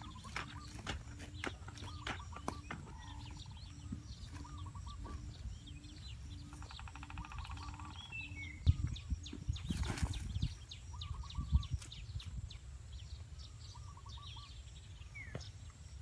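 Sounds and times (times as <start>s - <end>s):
hoe striking dry earth: 0.0s - 3.2s
birds chirping and trilling: 0.0s - 16.0s.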